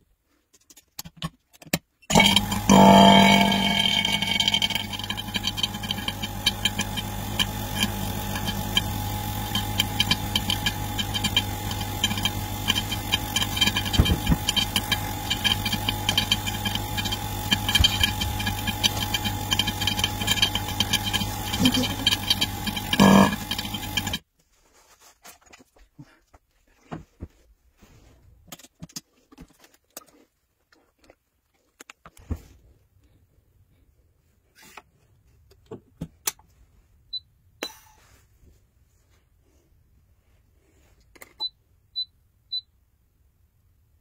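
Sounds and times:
vacuum pump humming and rattling: 0:02.1 - 0:24.2.

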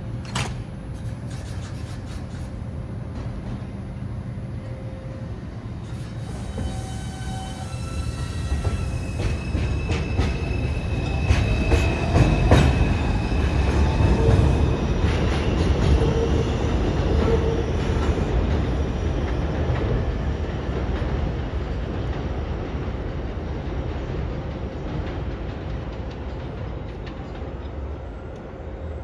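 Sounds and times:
train rumble: 0:00.0 - 0:29.0
train wheels squealing: 0:04.6 - 0:19.5.

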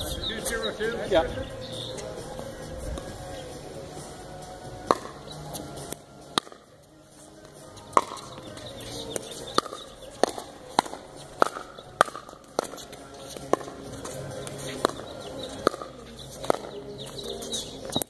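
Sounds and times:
paddles hitting plastic ball: 0:04.8 - 0:05.3, 0:05.9 - 0:06.7, 0:07.9 - 0:16.9.

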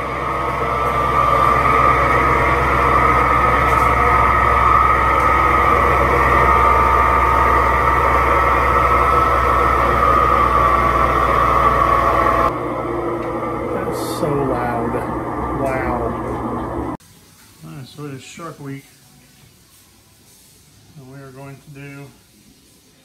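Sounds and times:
washing machine spinning: 0:00.0 - 0:17.0.

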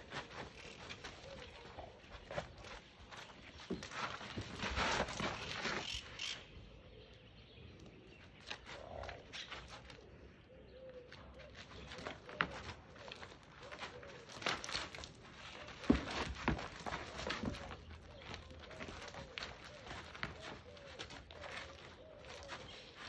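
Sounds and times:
soft cooing calls: 0:00.0 - 0:02.8, 0:08.6 - 0:23.0
rhinoceroses crunching over gravel: 0:00.0 - 0:06.5, 0:07.9 - 0:23.0.

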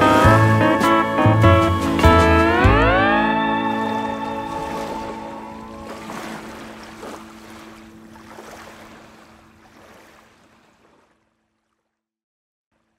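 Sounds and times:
held low music chord: 0:00.0 - 0:08.2
ocean surf: 0:00.0 - 0:10.9.

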